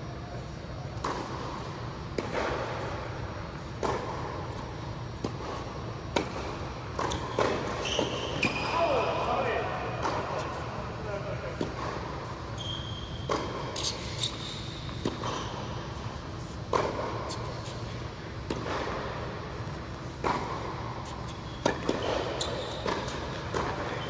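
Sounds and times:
tennis ball hit by rackets: 1.0s - 8.6s, 10.0s - 10.6s, 11.5s - 12.4s, 13.2s - 14.1s, 14.9s - 19.3s, 20.0s - 20.8s, 21.6s - 24.0s
shoe squeaks: 7.0s - 9.6s, 12.3s - 16.6s, 21.0s - 24.0s.

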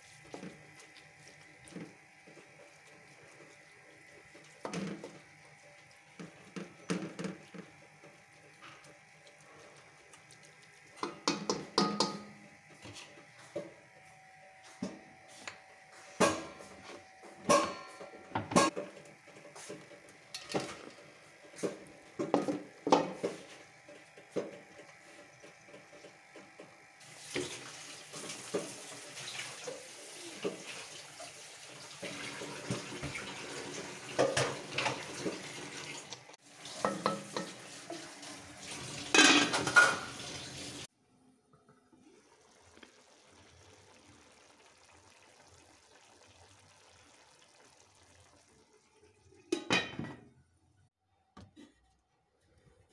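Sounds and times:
steel utensils clattering: 39.1s - 40.2s.

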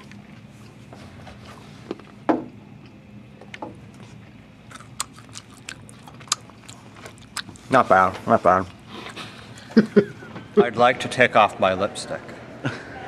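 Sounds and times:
person biting and chewing food: 4.0s - 7.8s.

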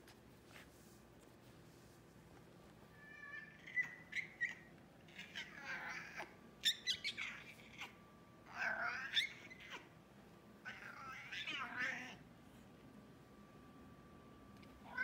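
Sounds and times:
cat chirping and meowing: 2.9s - 10.0s, 10.6s - 12.2s.

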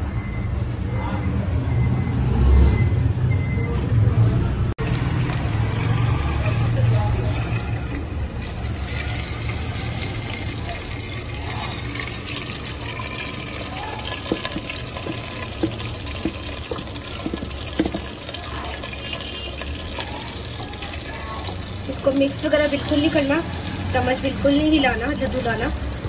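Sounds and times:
ladle scraping bowl: 4.9s - 22.1s
ladle clicking against bowl: 11.0s - 20.4s.

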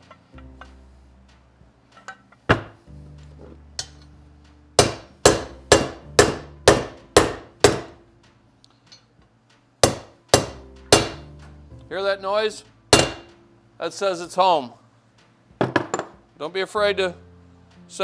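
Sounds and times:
hammer striking metal: 4.8s - 8.0s, 9.8s - 11.5s, 12.9s - 13.4s.

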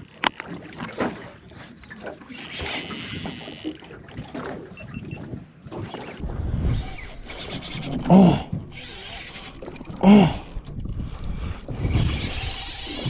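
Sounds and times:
water around boat: 0.0s - 13.0s
wind on microphone: 6.2s - 13.0s.

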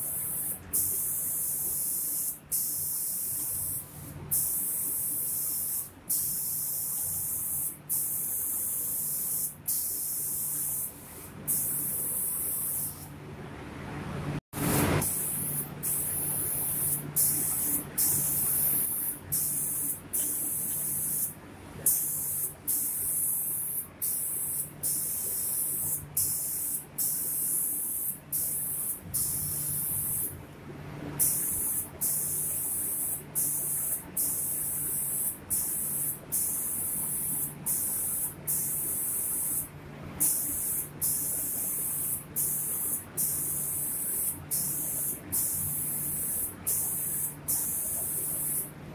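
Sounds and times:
spray gun hissing: 0.0s - 13.1s, 14.6s - 21.3s, 21.9s - 30.3s, 31.2s - 48.7s
low steady hum: 10.0s - 48.9s.

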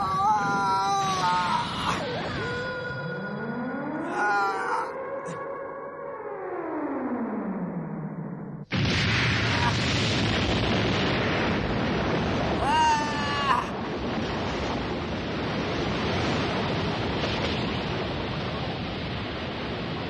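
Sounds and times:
short rising pitched cry: 0.2s - 5.4s.

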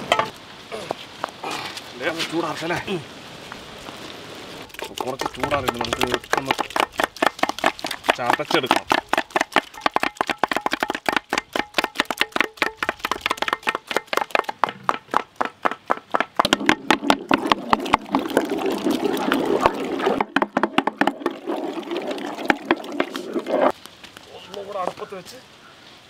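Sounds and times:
wooden pestles pounding pulp in pot: 4.7s - 23.7s.

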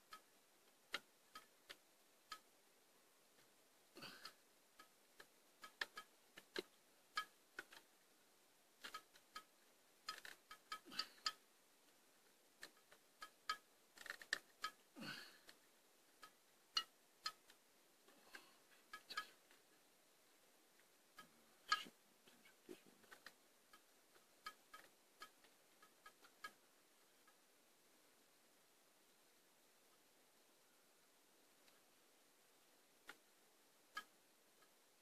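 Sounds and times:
metallic clicks and taps: 4.2s - 7.9s.

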